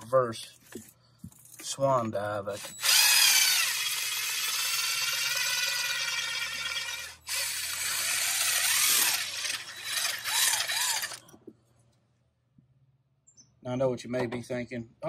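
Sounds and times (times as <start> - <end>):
impact driver spinning wire brush: 2.5 - 11.3.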